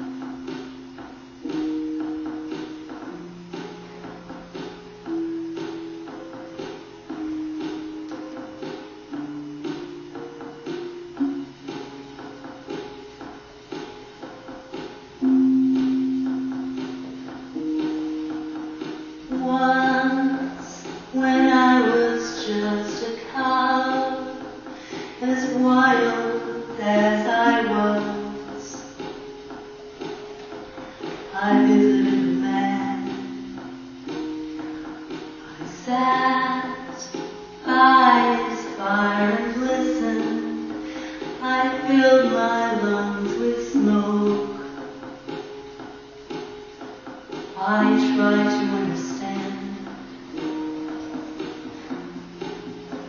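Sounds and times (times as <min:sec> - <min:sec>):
backing music: 0:00.0 - 0:53.0
sustained keyboard chords: 0:00.0 - 0:53.0
woman singing into microphone: 0:19.3 - 0:29.0, 0:31.3 - 0:33.5, 0:35.5 - 0:44.8, 0:47.6 - 0:50.1.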